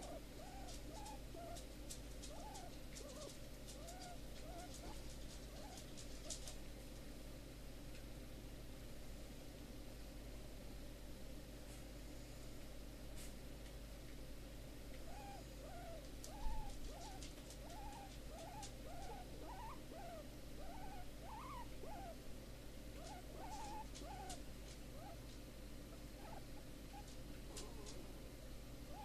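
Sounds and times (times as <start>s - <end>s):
guinea pig squeaking softly: 0.0s - 6.6s, 15.0s - 22.2s, 23.0s - 28.2s.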